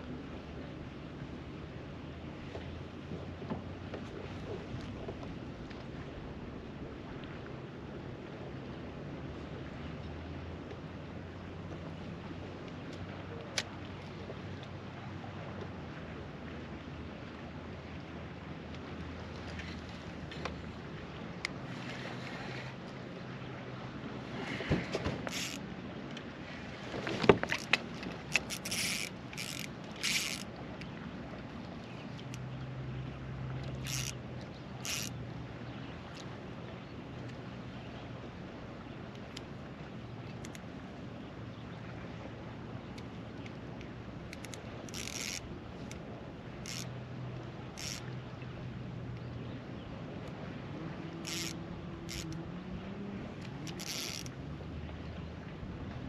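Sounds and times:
low motor hum: 24.7s - 26.2s, 26.9s - 41.7s, 42.3s - 56.0s
fishing reel drag buzzing: 25.2s - 25.6s, 27.5s - 30.5s, 33.8s - 34.2s, 34.8s - 35.2s, 44.3s - 46.0s, 46.6s - 46.9s, 47.7s - 48.1s, 51.1s - 52.4s, 53.4s - 54.4s.

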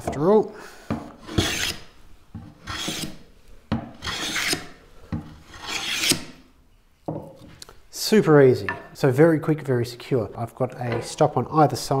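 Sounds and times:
hand plane shaving wood: 1.2s - 1.9s, 2.6s - 3.2s, 4.0s - 4.7s, 5.4s - 6.3s.

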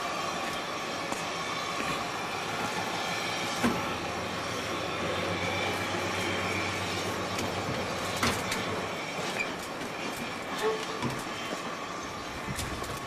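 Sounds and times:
diesel locomotive engine humming: 0.0s - 13.0s
wheel clicks over rail joints: 7.0s - 11.7s.

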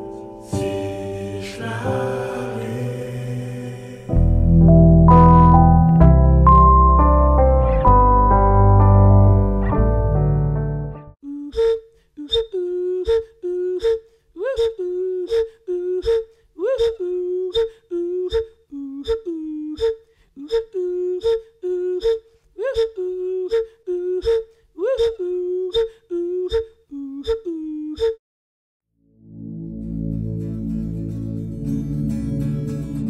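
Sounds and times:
repeated two-note music figure: 4.5s - 11.0s.

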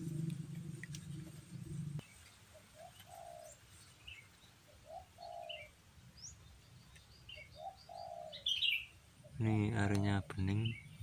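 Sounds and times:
low hum: 0.0s - 2.3s
dove cooing: 0.0s - 3.6s, 4.7s - 5.7s, 7.4s - 10.5s
small birds chirping: 0.0s - 11.0s.

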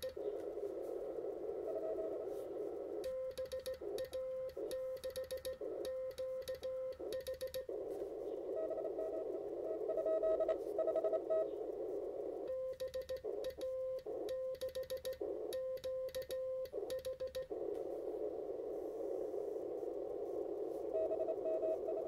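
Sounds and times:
receiver hiss: 0.0s - 22.0s
weak morse code signal: 0.0s - 22.0s
morse code sidetone: 1.2s - 11.5s, 12.2s - 17.7s, 20.8s - 22.0s.

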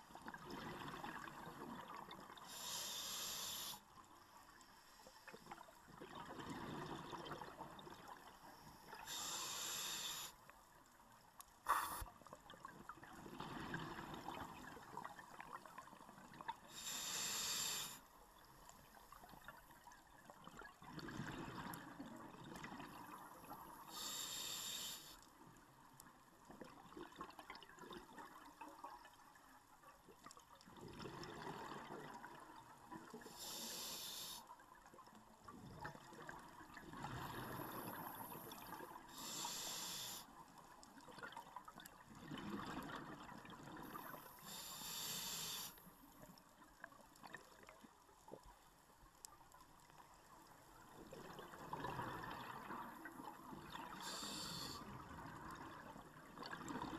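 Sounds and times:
regulator hiss on inhale: 2.4s - 4.0s, 8.4s - 10.5s, 11.6s - 12.1s, 16.7s - 18.2s, 23.7s - 25.3s, 33.2s - 34.5s, 37.2s - 40.4s, 44.0s - 46.0s, 53.9s - 55.0s.

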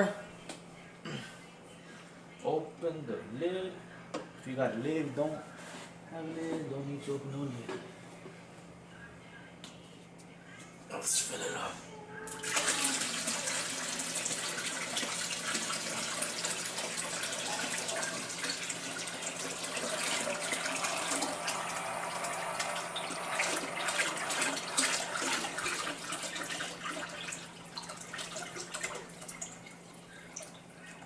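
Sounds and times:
water pouring and bubbling: 14.3s - 30.6s.

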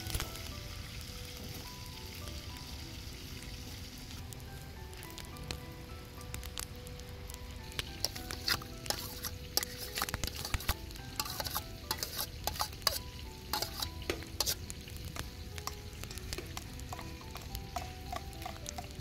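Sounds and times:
metal spoon scraping and clinking: 8.0s - 14.7s.

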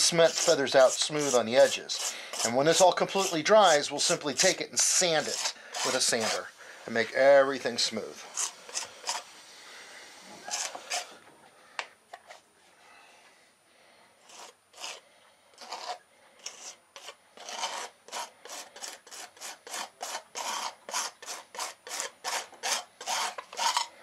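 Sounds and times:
metal knife scraping cement: 0.0s - 7.0s, 8.1s - 9.3s, 10.4s - 11.2s, 14.2s - 15.0s, 15.6s - 24.0s.

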